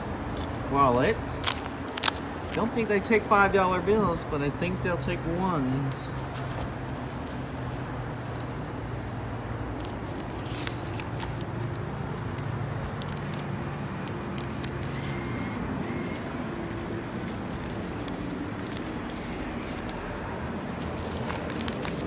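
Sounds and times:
paper bills rustling: 1.0 - 22.0
low mechanical hum: 5.6 - 22.0.

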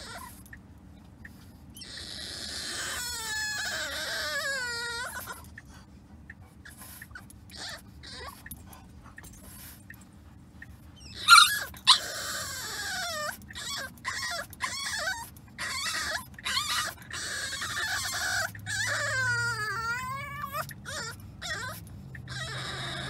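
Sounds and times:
puppy crying loudly: 0.0 - 0.4, 1.7 - 5.4, 6.6 - 8.5, 11.0 - 23.0
puppy whining: 0.0 - 23.0.

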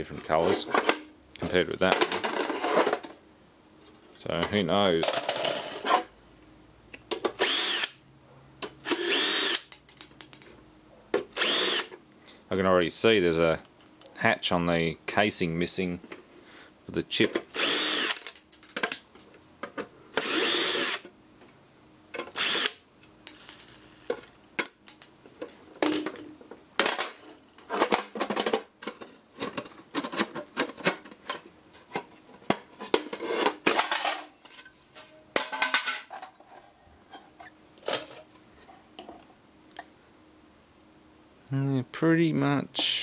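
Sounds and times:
cordless drill running: 7.4 - 8.0, 8.8 - 9.7, 11.4 - 11.9, 17.5 - 18.2, 20.2 - 21.0, 22.4 - 24.3.

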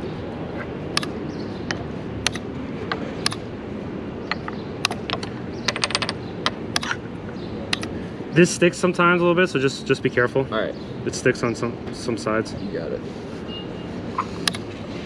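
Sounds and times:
city background hum: 0.0 - 15.0
chess pieces clacking on board: 4.3 - 6.2.

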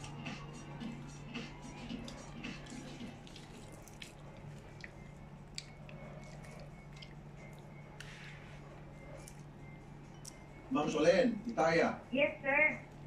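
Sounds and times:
fried chicken wet squishing: 2.0 - 7.6.

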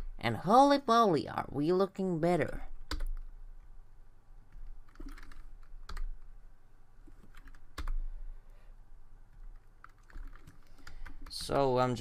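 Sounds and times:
low steady hum: 0.0 - 12.0
keyboard keys clicking: 4.6 - 6.1, 7.1 - 8.0, 9.3 - 11.6.

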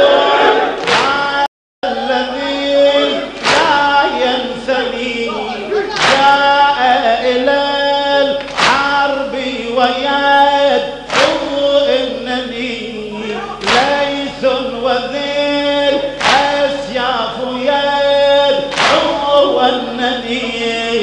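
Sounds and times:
men chanting: 0.0 - 21.0
lead voice on microphone: 0.9 - 21.0
sharp beat: 3.4 - 4.6, 13.6 - 14.4.

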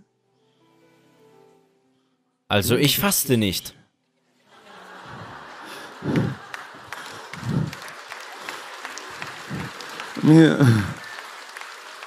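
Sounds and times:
audience clapping: 4.8 - 12.0
short voice sounds from crowd: 9.3 - 11.4.

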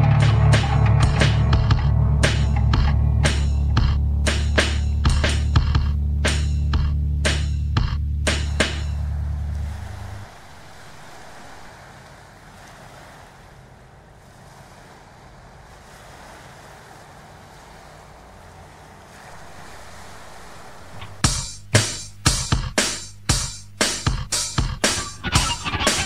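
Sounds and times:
music: 0.0 - 9.4, 21.2 - 26.0
small waves washing onto beach: 8.4 - 21.2.

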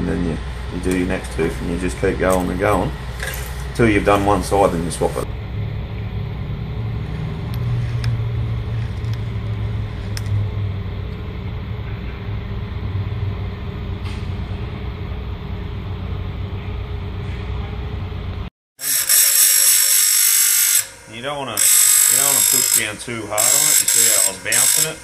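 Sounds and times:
steady low hum: 0.0 - 18.5
grinder wheel grinding metal: 18.8 - 25.0.

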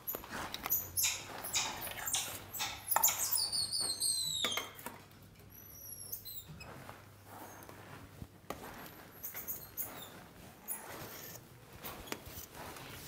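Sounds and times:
monkeys whistled calls: 0.7 - 4.7.

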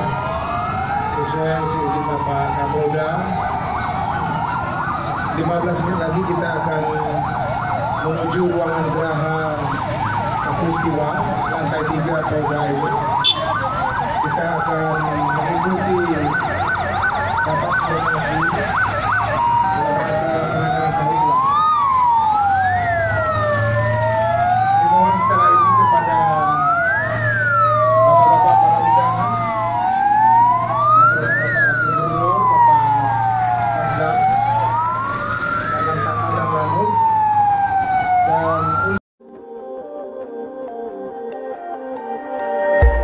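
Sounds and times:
truck engines droning: 0.0 - 39.0
fire engine sirens wailing: 0.0 - 43.0.

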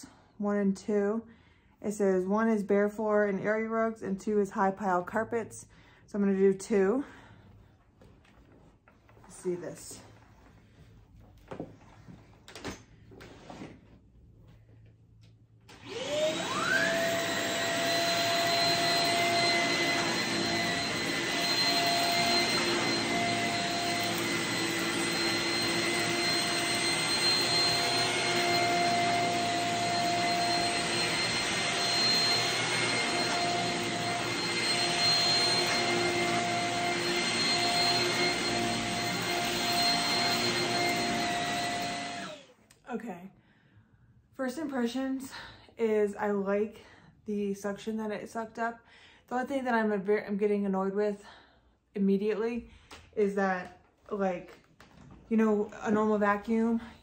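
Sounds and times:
vacuum cleaner running: 15.7 - 42.6.

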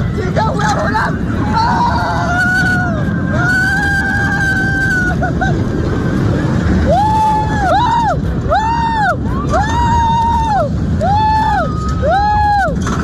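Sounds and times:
roller coaster train rumble: 0.0 - 13.0
wind rushing on microphone: 0.0 - 13.0
riders screaming: 0.6 - 5.6, 6.8 - 12.9.

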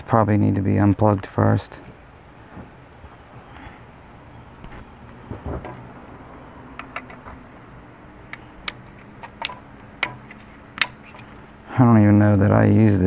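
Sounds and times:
plastic parts clicking and tapping: 6.7 - 7.4, 8.2 - 11.4.

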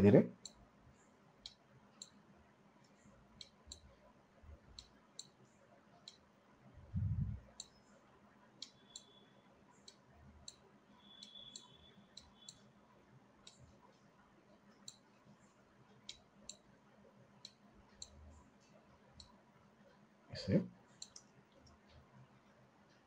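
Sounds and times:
computer mouse clicks: 2.8 - 3.9, 4.7 - 5.4, 6.0 - 6.3, 8.6 - 9.2, 9.8 - 12.7, 13.4 - 13.8, 14.8 - 15.0, 21.0 - 22.0.

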